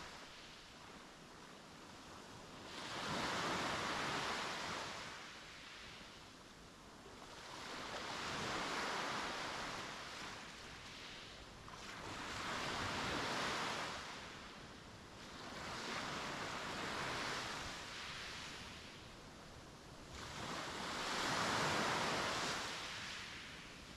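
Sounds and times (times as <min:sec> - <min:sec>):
sea waves breaking on beach: 0:20.0 - 0:23.8.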